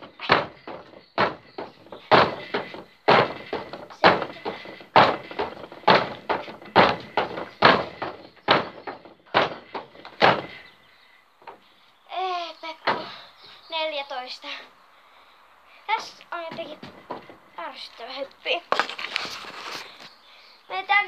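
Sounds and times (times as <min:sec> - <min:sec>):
feet thudding on wooden boards: 0:00.0 - 0:11.7, 0:12.8 - 0:13.6, 0:15.9 - 0:18.0, 0:18.7 - 0:20.1.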